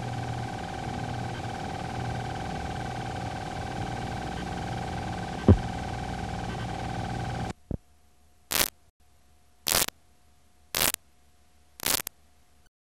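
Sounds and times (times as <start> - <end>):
faint hum: 0.0 - 12.7
static bursts: 5.4 - 5.7, 8.5 - 8.8, 9.7 - 9.9, 10.8 - 11.0, 11.8 - 12.1.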